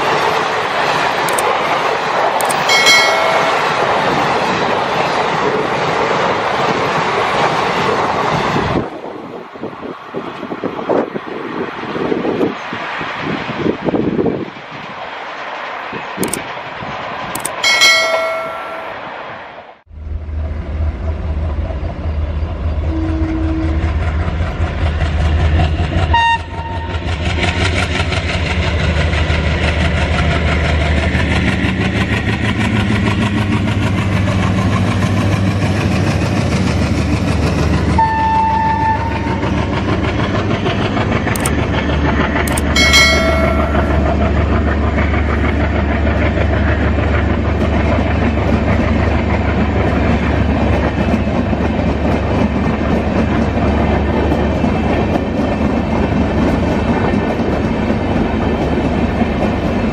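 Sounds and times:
train clickety-clack on rails: 0.0 - 19.6, 20.2 - 59.9
train horn tones: 22.8 - 24.0, 26.1 - 27.1, 38.0 - 39.6.

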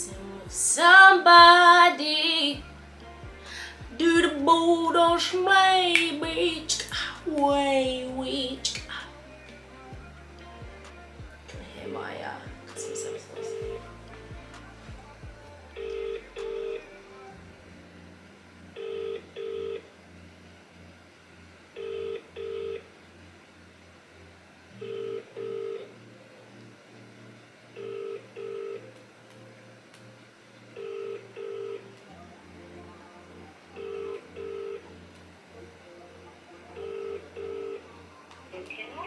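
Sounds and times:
telephone ringback tone: 12.8 - 13.8, 15.8 - 16.8, 18.8 - 19.9, 21.8 - 22.9, 24.8 - 25.9, 27.8 - 28.8, 30.8 - 31.9, 33.8 - 34.9, 36.7 - 37.9.

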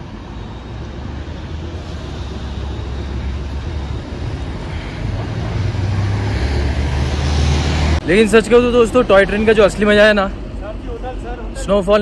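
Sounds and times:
hiss: 1.7 - 6.4.

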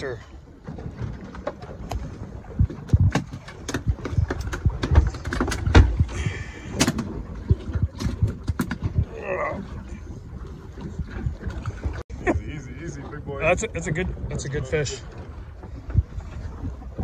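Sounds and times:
fish flopping on boat deck: 0.5 - 12.1.

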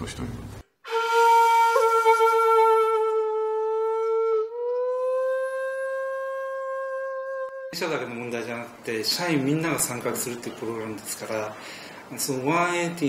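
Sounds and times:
flute-like instrument long notes: 0.8 - 7.8.

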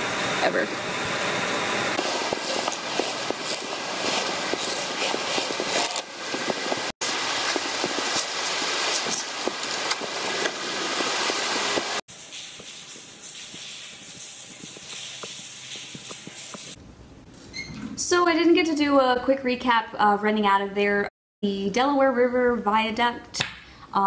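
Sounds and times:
person crawling rustling and scraping: 2.0 - 16.8
clothing rubbing near microphone: 2.0 - 17.5.

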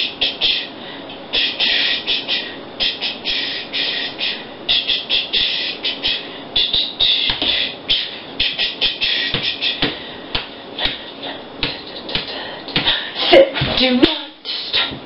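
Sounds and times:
hissy hi-hat-like bursts: 0.0 - 10.0.

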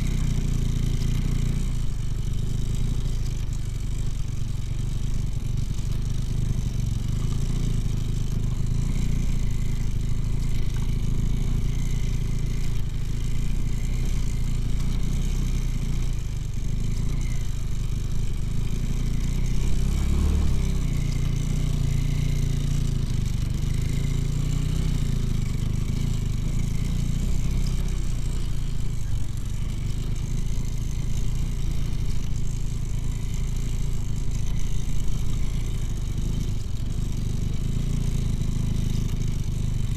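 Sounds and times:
motorcycle engine under load: 0.0 - 39.9.

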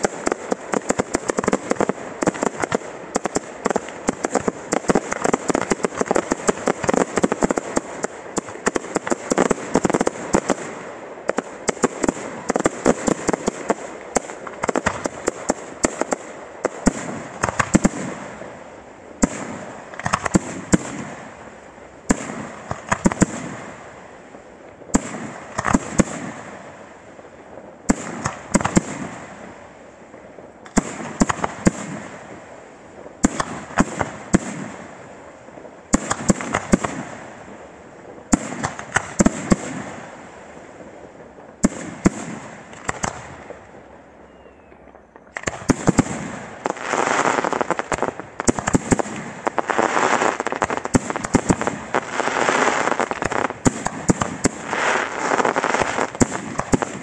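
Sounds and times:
firework shells bursting: 0.0 - 18.3, 40.8 - 57.0
steady hiss: 0.0 - 57.0.

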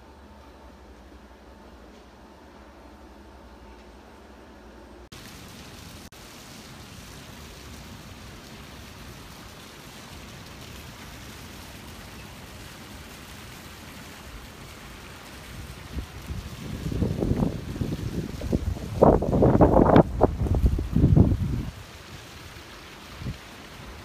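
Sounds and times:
rushing water: 5.1 - 24.0
wind buffeting microphone: 15.5 - 21.8.

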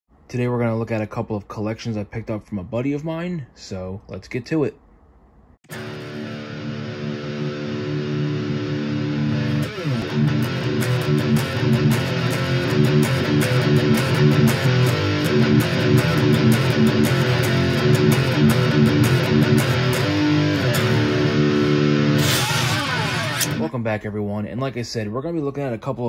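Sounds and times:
guitar-led intro music: 5.7 - 23.7.

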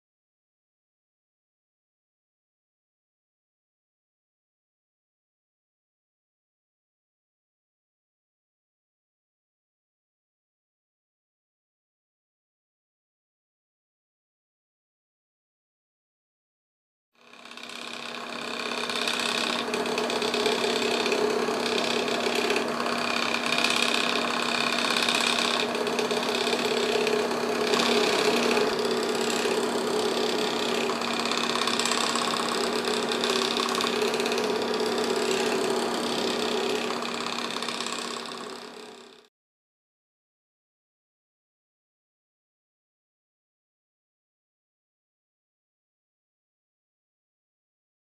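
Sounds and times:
stepper motors whining and buzzing: 17.2 - 39.3.

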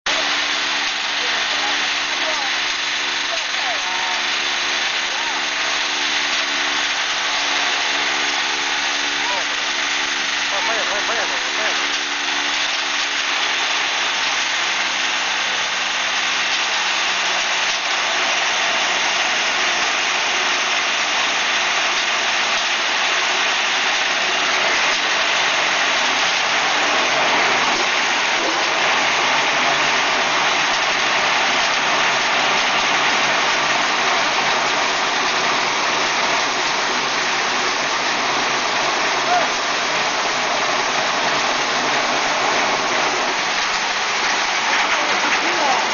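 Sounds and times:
sawdust machine grinding wood: 0.0 - 45.9.

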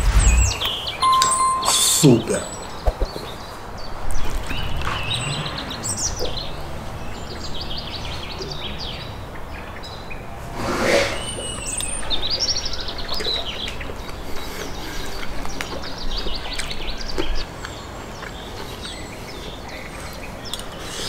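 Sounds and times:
birds chirping and singing: 0.0 - 10.3, 11.0 - 21.0.

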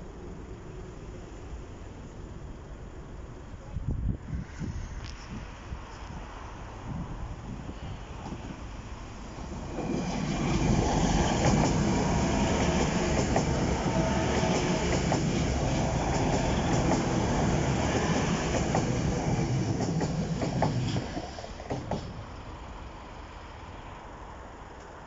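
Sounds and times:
wheels clicking over rail joints: 8.2 - 22.5.

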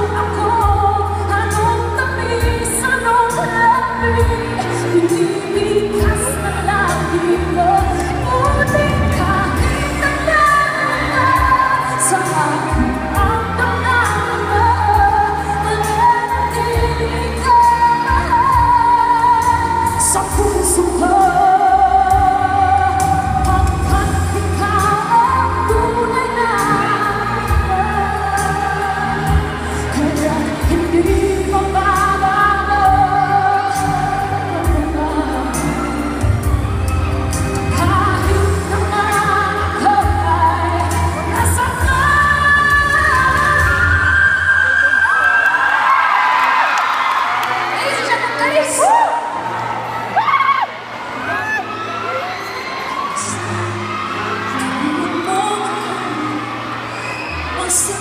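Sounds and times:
woman singing into microphone: 0.0 - 45.2, 47.5 - 49.6, 53.1 - 58.0
backing music: 0.0 - 58.0.

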